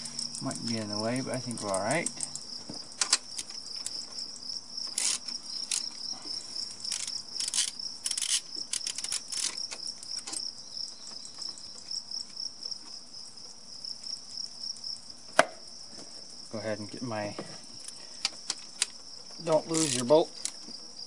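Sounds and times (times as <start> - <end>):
insects droning: 0.0 - 21.0
hand ratchet clicking: 4.9 - 6.0, 6.8 - 10.4, 19.6 - 20.6.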